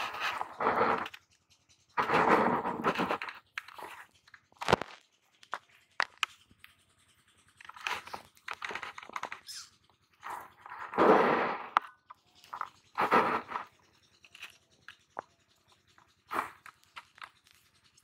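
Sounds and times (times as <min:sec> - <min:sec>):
scraping fish by hand: 0:12.4 - 0:18.0.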